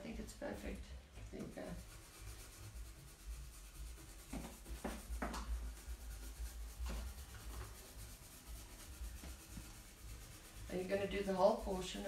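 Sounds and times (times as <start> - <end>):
brush scratching on paper: 0.0 - 12.0.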